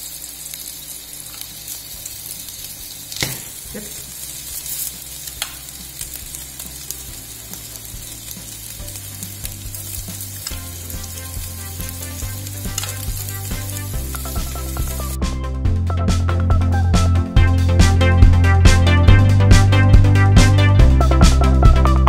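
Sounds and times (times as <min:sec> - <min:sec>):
potatoes sizzling in oil: 0:00.0 - 0:15.2
background music: 0:04.7 - 0:22.0.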